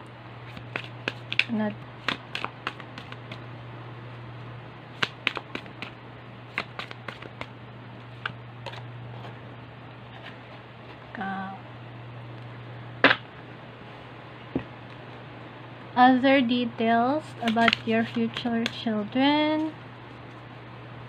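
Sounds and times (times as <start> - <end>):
cards snapping and tapping: 0.5 - 3.4, 4.9 - 7.5, 8.2 - 8.8, 17.4 - 18.9.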